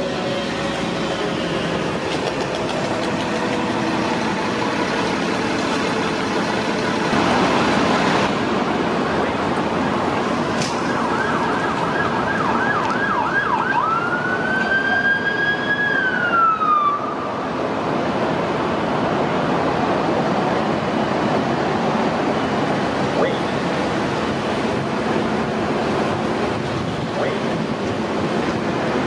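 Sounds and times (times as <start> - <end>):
street traffic noise: 0.0 - 29.0
emergency vehicle siren: 9.2 - 17.8.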